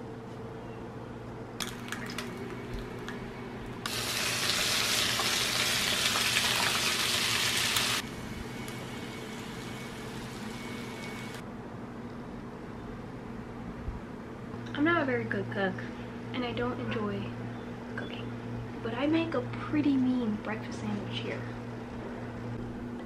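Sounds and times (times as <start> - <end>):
egg and ham sizzling in pan: 1.6 - 3.1, 3.8 - 11.4.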